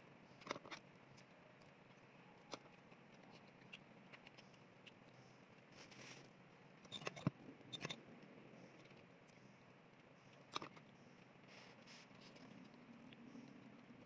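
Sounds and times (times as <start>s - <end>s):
chewing clicks: 0.4s - 5.3s, 6.9s - 11.4s, 12.2s - 14.0s.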